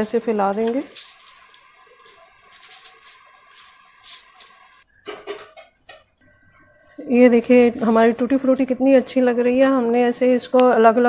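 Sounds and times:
spoon scraping on foil: 0.4s - 4.8s.

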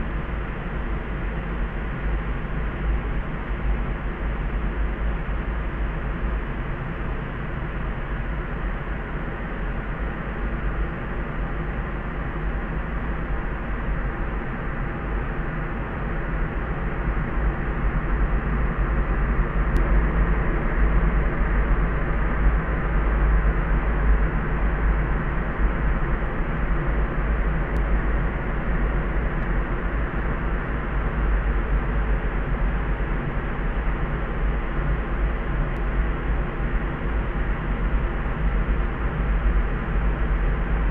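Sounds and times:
deep hushed steady noise: 0.0s - 40.9s.

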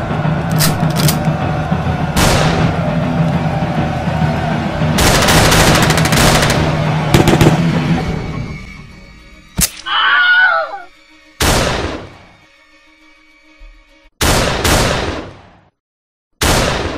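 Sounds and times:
gunshots and blasts: 2.2s - 2.9s, 5.0s - 7.8s, 11.4s - 12.2s, 14.2s - 15.7s, 16.4s - 16.9s.

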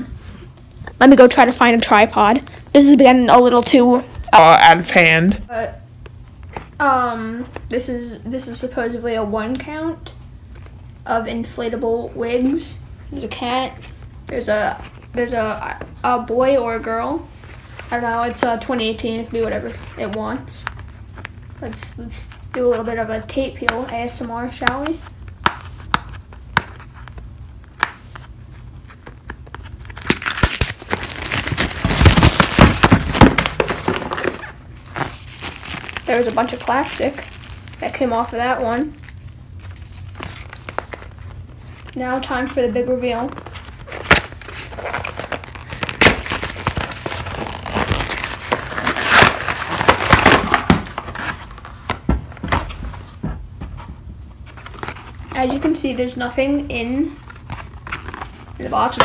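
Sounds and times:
cardboard crinkling and tearing: 27.8s - 52.0s, 57.2s - 59.0s
plastic wrap crackling as torn: 28.8s - 42.0s, 43.1s - 51.7s.

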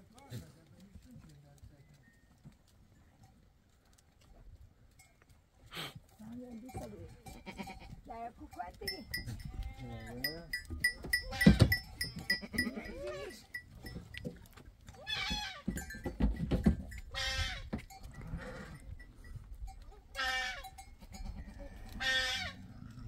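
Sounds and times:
goats shuffling: 0.0s - 23.0s
goats bleating: 7.2s - 8.0s, 9.1s - 10.3s, 11.1s - 13.6s, 14.9s - 15.9s, 17.0s - 18.8s, 20.0s - 23.0s.

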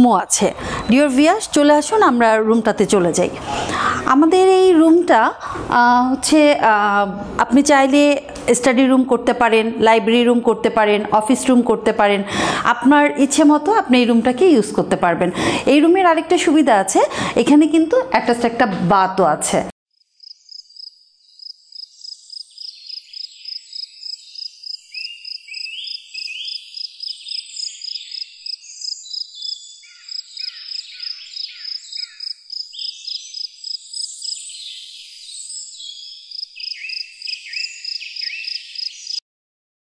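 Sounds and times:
birds chirping: 0.0s - 3.2s, 20.2s - 39.2s.

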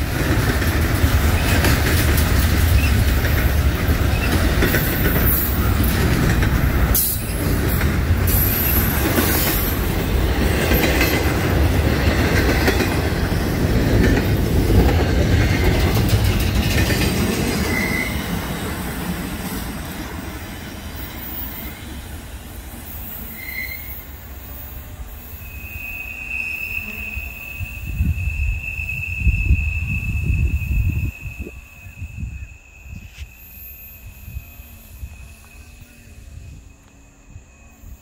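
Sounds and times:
train wheels rumbling on rail: 0.0s - 38.0s
high wheel squeals: 17.4s - 18.6s, 20.9s - 22.0s, 22.8s - 38.0s.

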